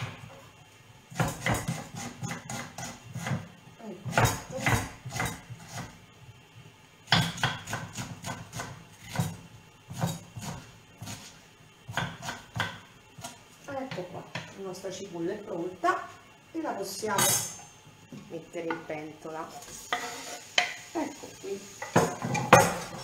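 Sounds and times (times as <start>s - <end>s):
knife chopping on cutting board: 1.1s - 6.0s, 7.1s - 11.3s, 11.9s - 13.4s.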